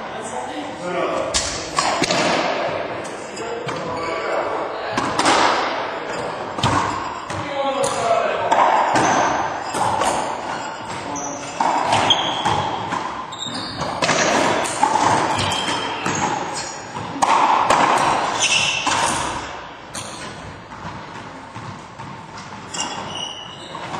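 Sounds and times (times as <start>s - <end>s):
racquetball ball smacks echoing: 1.3s - 2.7s, 5.0s - 11.0s, 11.6s - 22.5s.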